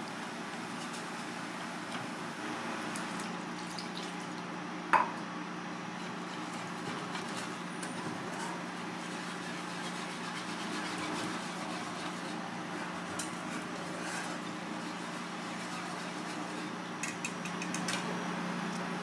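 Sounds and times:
kitchen hum and hiss: 0.0 - 19.0
wire whisk beating sauce: 6.0 - 17.9.

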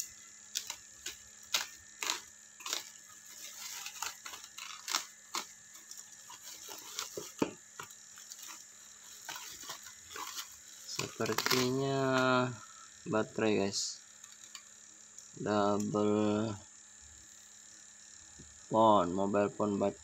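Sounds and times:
cutter slicing plastic: 0.0 - 12.2
plastic crinkling and crackling: 0.0 - 12.3.

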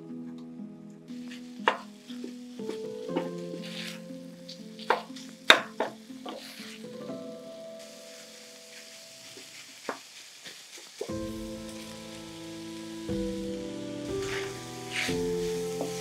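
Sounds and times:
soft background music: 0.0 - 9.9, 11.0 - 16.0
sausage sizzling in a skillet: 1.1 - 16.0.

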